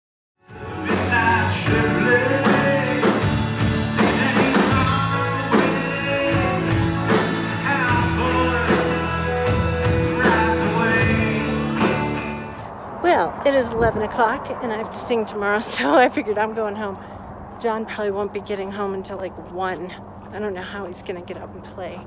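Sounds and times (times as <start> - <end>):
country band playing: 0.4 - 12.7
man singing: 0.5 - 12.3
steady drum beat: 0.8 - 12.4.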